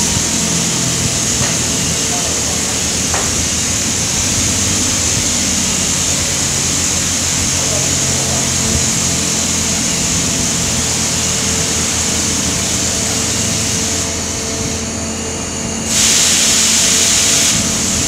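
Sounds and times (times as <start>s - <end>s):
machinery hum: 0.0s - 18.0s
strong hiss: 0.0s - 18.0s.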